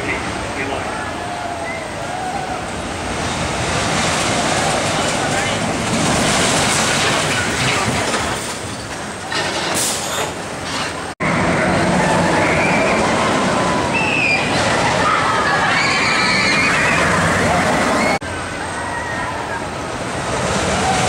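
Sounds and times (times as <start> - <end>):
roller coaster roaring on track: 0.0 - 21.0
riders screaming: 11.5 - 19.8.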